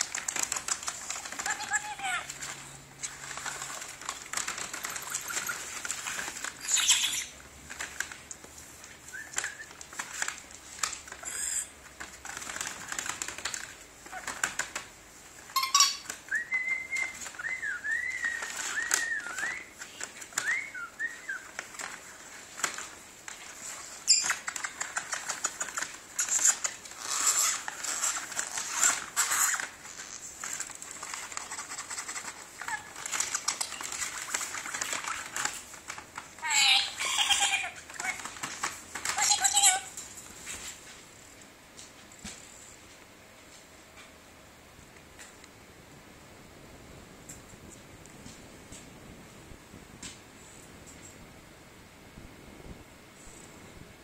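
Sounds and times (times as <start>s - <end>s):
paper bag rustling: 0.0s - 11.3s, 16.2s - 41.2s.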